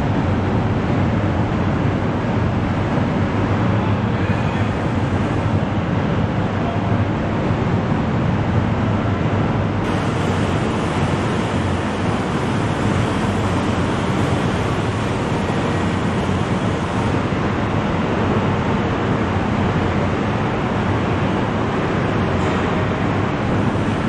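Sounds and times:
assembly line rushing noise: 9.8 - 17.4.

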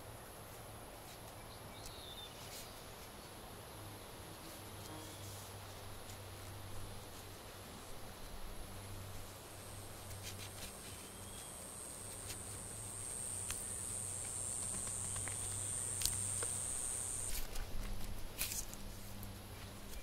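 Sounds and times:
high-pitched insect drone: 11.7 - 17.4.

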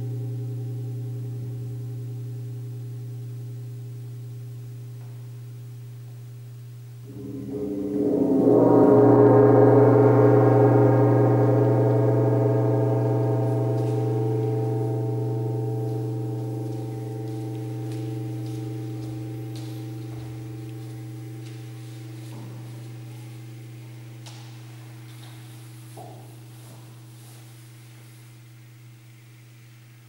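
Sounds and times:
gong ringing: 7.0 - 27.3.

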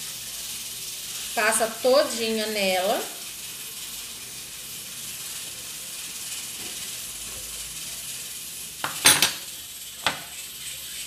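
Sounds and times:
pressure cooker steam hissing: 0.0 - 11.0.

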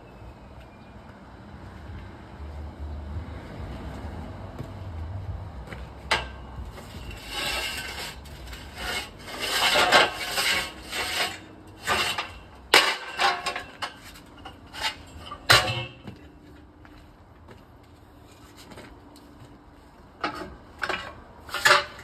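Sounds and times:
steel props scraping: 6.1 - 16.3, 20.2 - 22.0.

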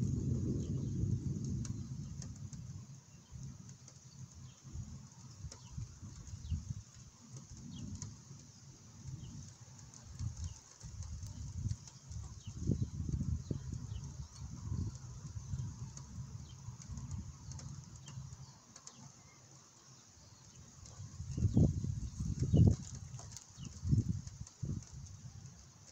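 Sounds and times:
distant thunder rumbling: 0.0 - 3.0.

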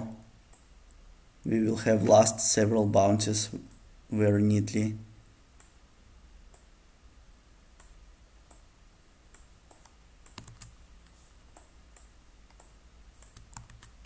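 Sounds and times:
mouse and keyboard clicks: 9.3 - 14.0.

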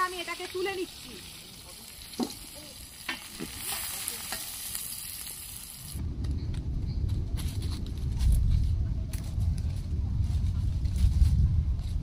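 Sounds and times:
oil sizzling in a pan: 0.0 - 6.0
low rumble with crackles: 5.9 - 12.0.

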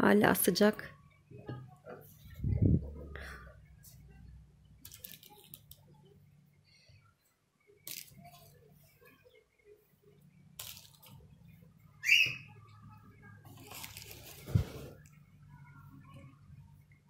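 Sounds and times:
faint low hum: 0.2 - 17.0.

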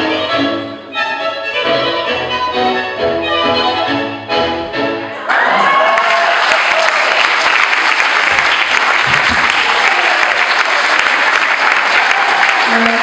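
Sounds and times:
crowd cheering: 5.1 - 13.0
audience applause: 5.2 - 13.0.

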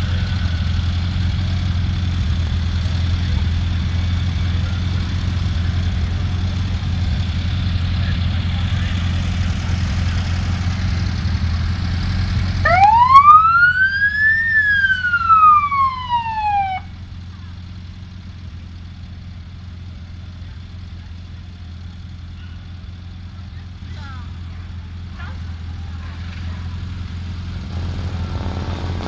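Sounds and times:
car engines running low: 0.0 - 29.0
police siren wailing: 12.6 - 17.0.

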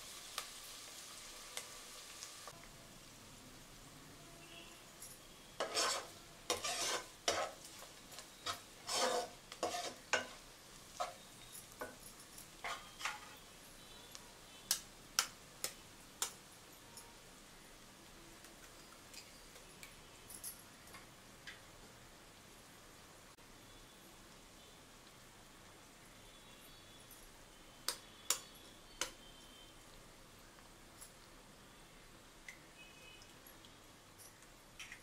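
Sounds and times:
faint frying sizzle: 0.0 - 35.0
spatula scraping pot: 5.6 - 7.7, 8.4 - 10.4, 12.6 - 13.4.

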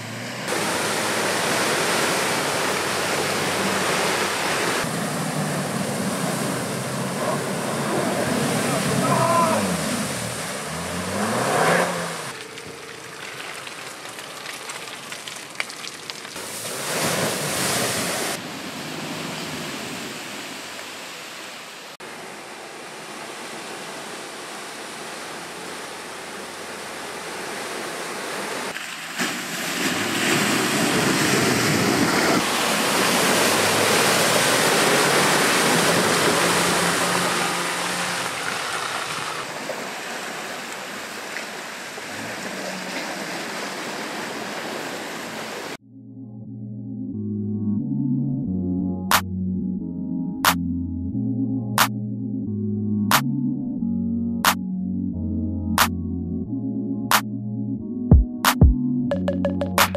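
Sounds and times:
muddy water splashing: 0.5 - 20.1, 23.5 - 45.8.

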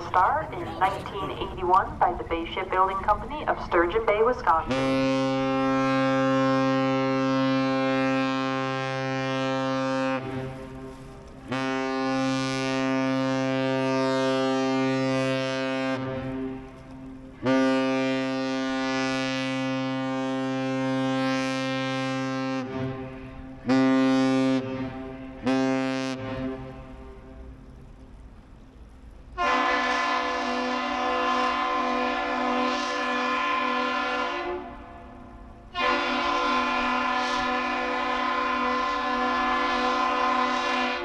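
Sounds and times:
ship's horn blasts: 0.0 - 27.8, 29.3 - 41.0.

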